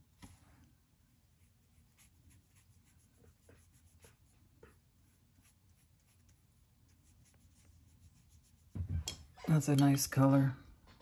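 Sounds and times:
paintbrush scratching on paper: 0:01.1 - 0:08.8.

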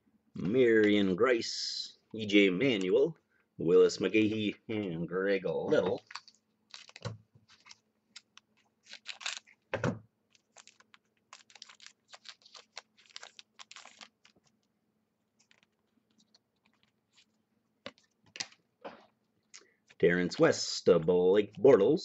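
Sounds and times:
foil pack rustling: 0:06.0 - 0:09.6, 0:10.3 - 0:14.7.

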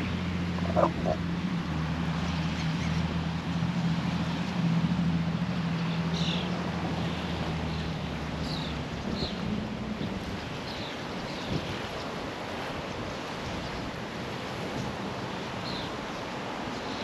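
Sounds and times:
low engine drone: 0:00.0 - 0:10.6.

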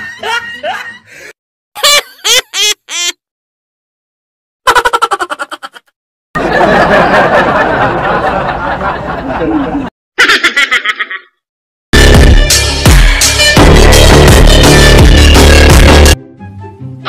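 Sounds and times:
comic laughing sound effects: 0:00.0 - 0:01.1, 0:01.8 - 0:03.2, 0:04.6 - 0:07.6, 0:09.2 - 0:11.4.

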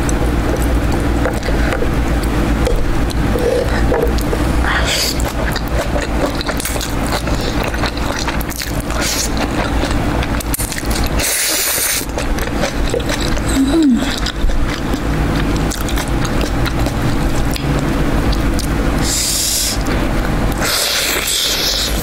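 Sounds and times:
chewing: 0:00.0 - 0:22.0
steady low hum: 0:00.0 - 0:22.0
slurping noodles: 0:02.6 - 0:14.7, 0:19.0 - 0:22.0.

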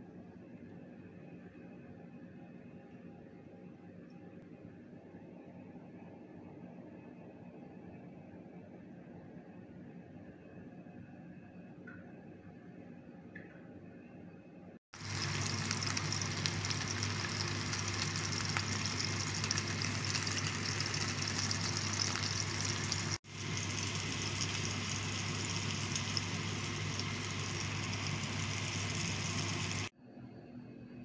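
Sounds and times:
low steady hum: 0:00.0 - 0:31.0
fish sizzling in oil: 0:15.0 - 0:29.9.

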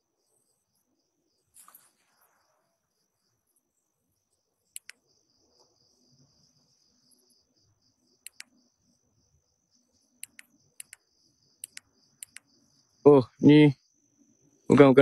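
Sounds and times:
night insects chirring: 0:00.0 - 0:15.0
sharp clicks: 0:04.7 - 0:05.0, 0:08.2 - 0:08.6, 0:10.2 - 0:12.5.

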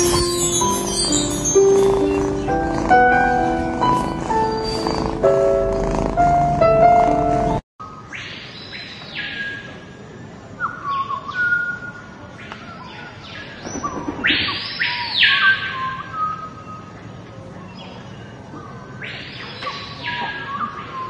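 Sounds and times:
toucan croaking calls: 0:00.0 - 0:06.0.

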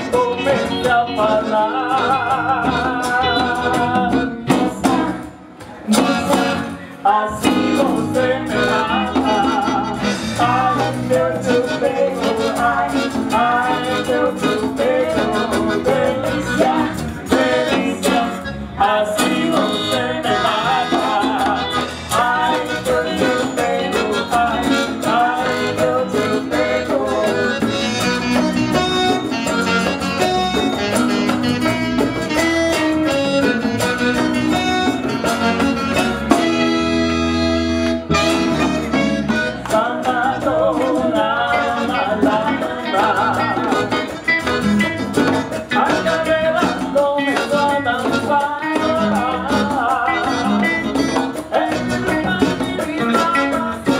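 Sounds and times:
woman singing: 0:00.0 - 0:27.4, 0:39.7 - 0:44.1, 0:51.3 - 0:53.9
latin band playing: 0:00.0 - 0:53.9.

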